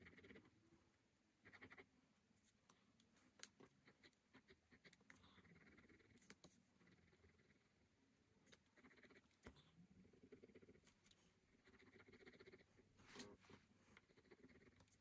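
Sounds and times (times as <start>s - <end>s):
pen scratching on paper: 10.3s - 13.4s.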